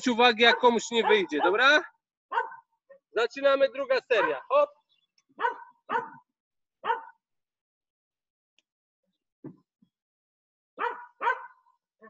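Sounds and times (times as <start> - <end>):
dog barking: 0.5 - 1.7, 2.3 - 2.7, 4.1 - 4.5, 5.4 - 7.2, 10.8 - 11.7.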